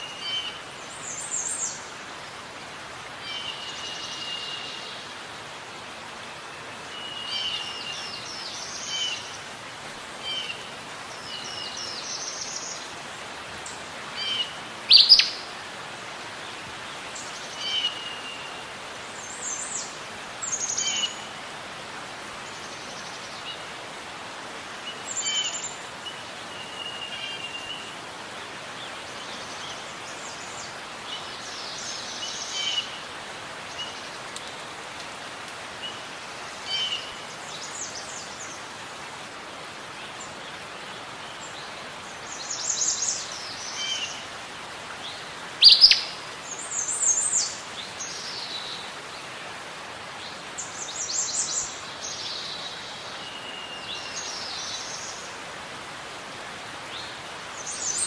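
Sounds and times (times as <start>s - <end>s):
outdoor ambience hiss: 0.0s - 58.0s.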